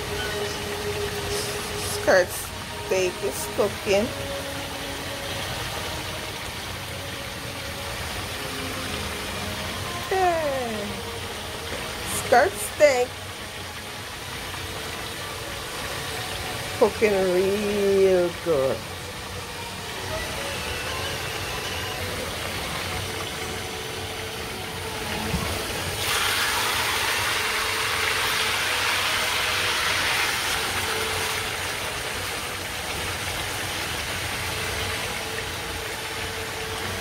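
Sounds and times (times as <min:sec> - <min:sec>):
steak sizzling in frying pan: 0:25.6 - 0:32.6.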